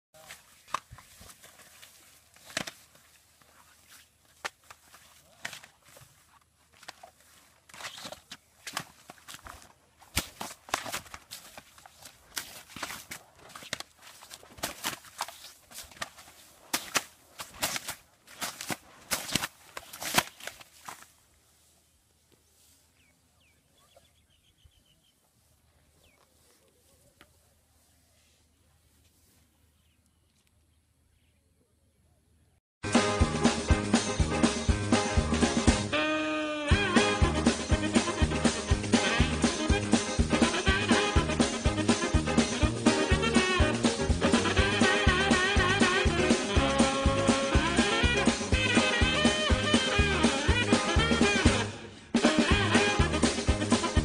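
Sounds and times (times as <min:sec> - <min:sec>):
elephant footsteps on grass: 0:00.2 - 0:30.5
plastic ribbon rustling: 0:00.3 - 0:21.2
faint bird chirps: 0:21.8 - 0:32.6.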